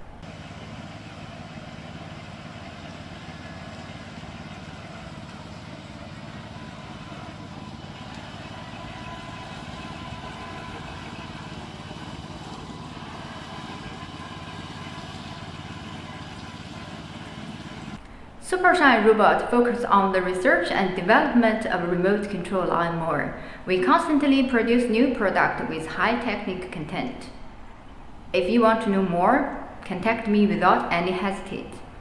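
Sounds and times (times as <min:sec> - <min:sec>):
lawn mower petrol engine running: 0:00.0 - 0:18.0.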